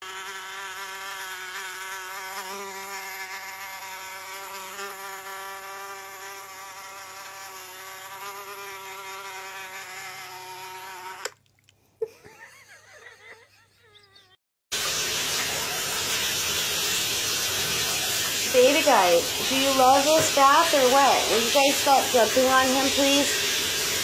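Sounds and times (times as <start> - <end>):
fly buzzing from phone speaker: 0.0 - 11.4, 18.4 - 24.0.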